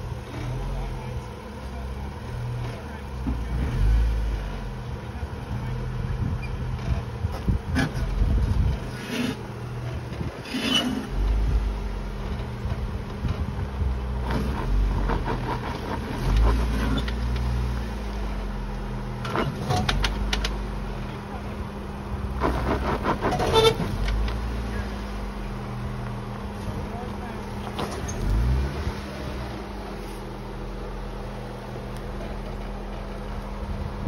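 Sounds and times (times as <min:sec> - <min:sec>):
engine low rumble: 0:00.0 - 0:34.0
sharp knocks and scrapes: 0:06.8 - 0:11.4, 0:14.2 - 0:17.5, 0:22.4 - 0:24.4.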